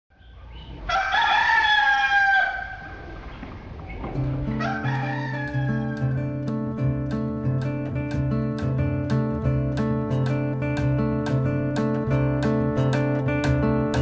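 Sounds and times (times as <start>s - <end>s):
rooster crowing: 0.8s - 3.2s, 4.5s - 6.2s
strummed acoustic guitar music: 4.1s - 14.0s.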